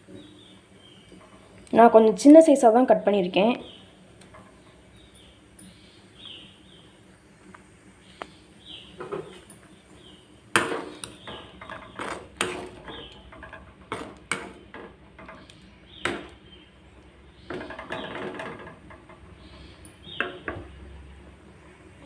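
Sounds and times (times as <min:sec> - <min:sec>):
metal ladle scraping metal pan: 0:10.6 - 0:15.5.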